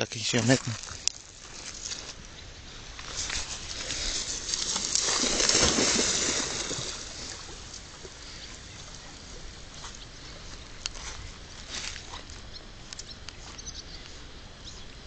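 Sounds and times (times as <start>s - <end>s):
dog splashing in water: 4.0s - 7.6s.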